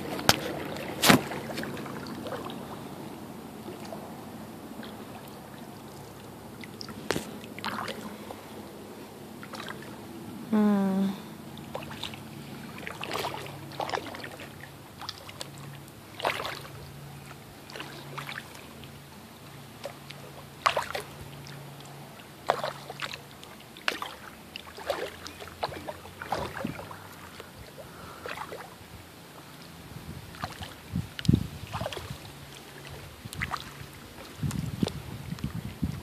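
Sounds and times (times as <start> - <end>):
kayak paddle splashing: 0.0 - 10.5, 11.2 - 36.0.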